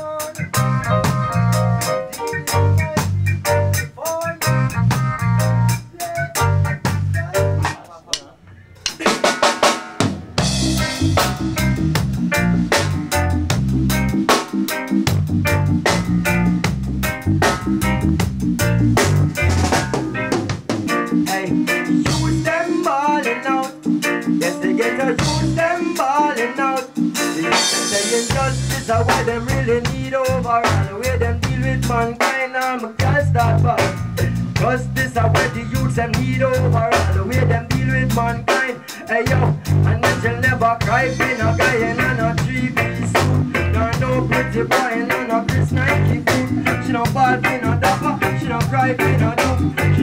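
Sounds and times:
man singing into a microphone: 0.0 - 0.6, 2.2 - 4.8, 5.8 - 8.4, 21.2 - 50.0
reggae band music: 0.0 - 50.0
deep bass line: 0.4 - 7.8, 10.3 - 14.3, 15.0 - 20.8, 25.2 - 25.7, 28.3 - 32.2, 33.0 - 38.5, 39.2 - 50.0
sharp drum hits: 7.6 - 12.1.

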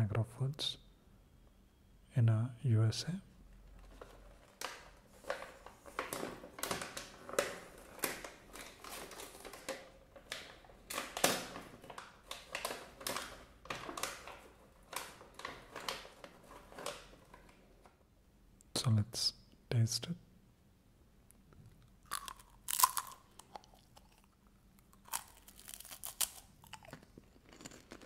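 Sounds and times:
plastic snack pouch crinkling: 4.6 - 17.4, 22.0 - 28.0.

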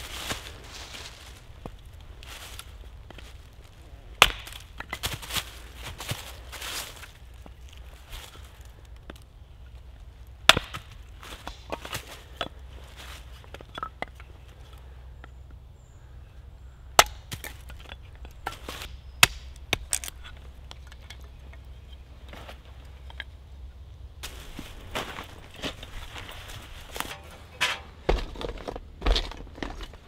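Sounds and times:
hatchet chopping wood: 4.2 - 5.2, 10.4 - 12.6, 16.9 - 20.3.

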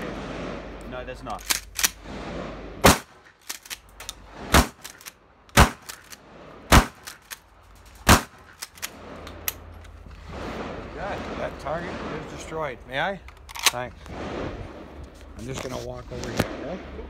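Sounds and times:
shotgun shots: 1.5 - 3.2, 4.4 - 6.1, 6.7 - 7.2, 8.0 - 8.5.

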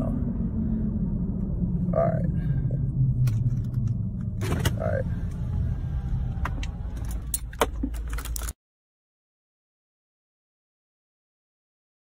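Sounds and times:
low rumble: 0.0 - 8.6.

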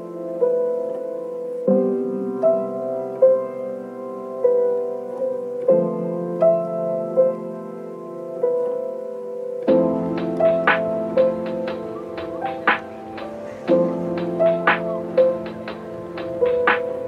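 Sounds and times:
slow piano melody: 0.0 - 17.0.

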